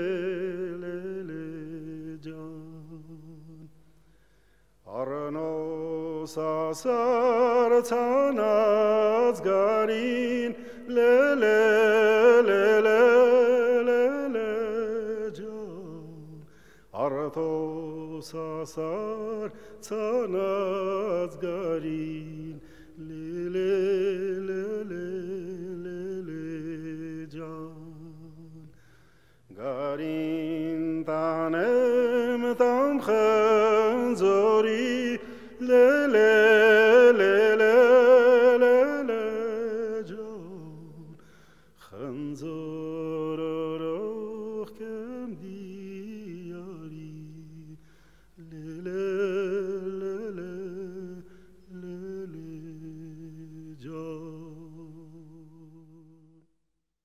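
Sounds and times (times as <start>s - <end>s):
person singing with vibrato: 29.5s - 56.4s.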